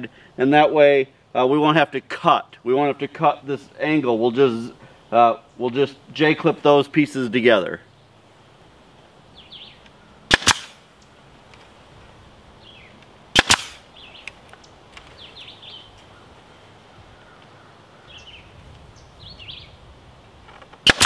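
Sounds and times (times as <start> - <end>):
staple gun firing: 10.3 - 10.8, 13.4 - 13.8
faint bird chirps: 13.9 - 19.8.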